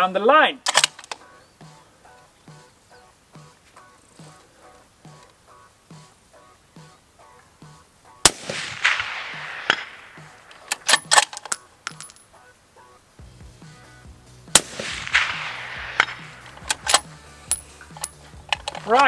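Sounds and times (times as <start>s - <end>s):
rifle bolt metallic clicks: 0.6s - 1.2s, 10.5s - 12.3s, 16.0s - 19.0s
suppressed rifle shots with echo: 8.2s - 12.2s, 14.5s - 18.8s.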